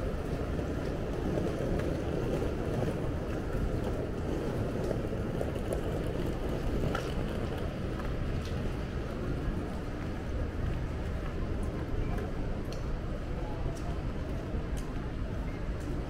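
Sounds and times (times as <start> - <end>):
city street rumble: 0.0 - 16.0
faint clicks: 11.6 - 13.0.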